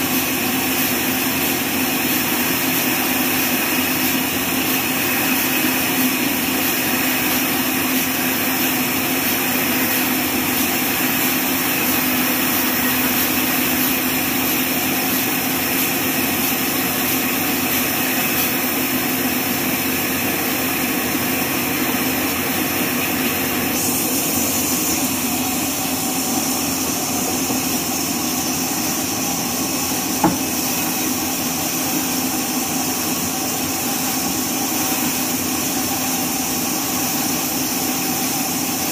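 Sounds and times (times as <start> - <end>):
band saw cutting log: 0.0 - 38.0.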